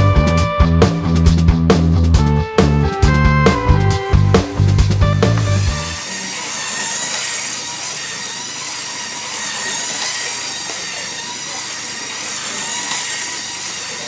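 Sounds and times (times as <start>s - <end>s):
toy train motor whirring: 4.5s - 14.0s
wheels rattling on rails: 4.6s - 14.0s.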